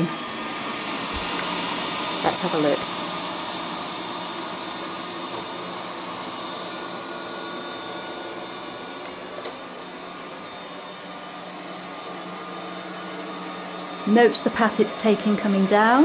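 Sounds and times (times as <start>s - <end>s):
robot vacuum motor hum: 0.0s - 16.0s.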